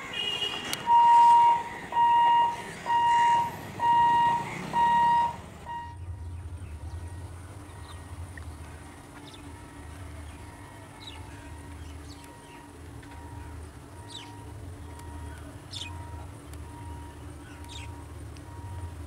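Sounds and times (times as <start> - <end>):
electronic warning beeps: 0.9 - 6.2, 12.3 - 19.0
low steady rumble: 0.9 - 19.0.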